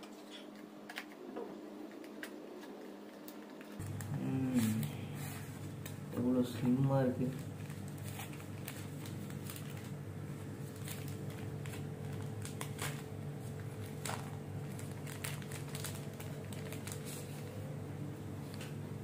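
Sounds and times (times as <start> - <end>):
steady low hum: 0.0 - 19.0
packaging clicks and rustles: 6.6 - 17.6.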